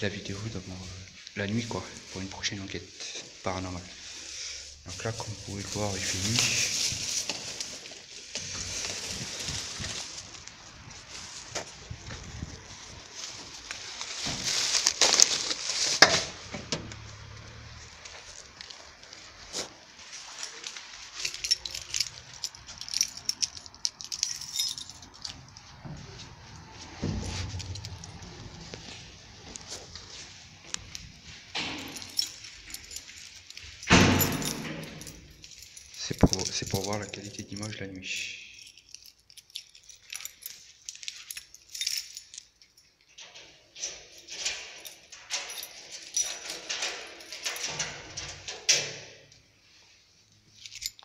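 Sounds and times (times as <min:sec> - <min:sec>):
light metallic jingling: 0:20.1 - 0:51.0
low rumble: 0:26.4 - 0:29.6.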